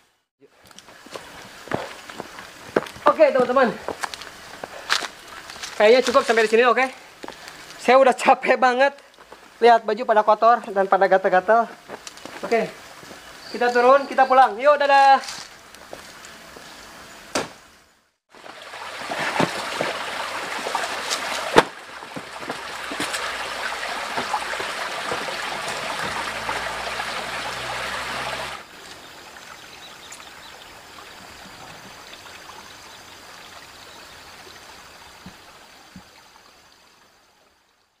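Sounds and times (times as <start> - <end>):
stream water running over rocks: 0.4 - 16.6, 18.3 - 38.0
sharp knocks: 17.3 - 17.6.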